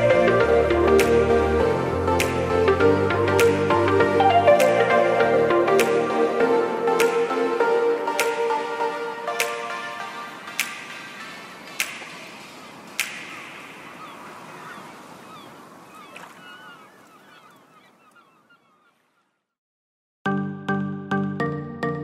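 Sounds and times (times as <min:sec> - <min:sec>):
music with steady beat: 0:00.0 - 0:12.2.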